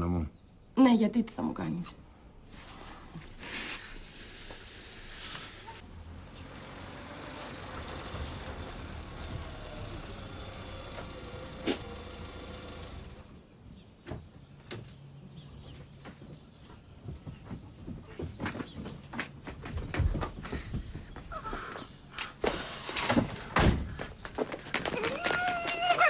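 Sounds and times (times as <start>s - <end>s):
car engine running: 5.8s - 13.5s.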